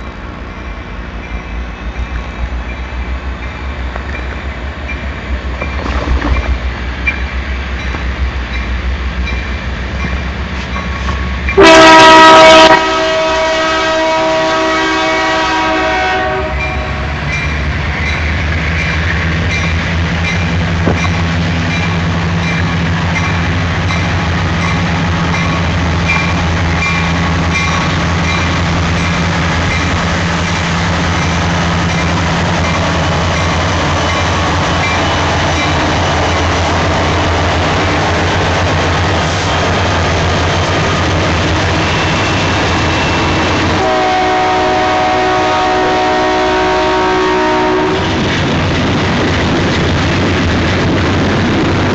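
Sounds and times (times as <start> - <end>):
diesel engines rumbling: 0.0 - 51.9
train cars rolling: 0.0 - 51.9
locomotive horn blast: 11.6 - 17.1, 41.7 - 48.2.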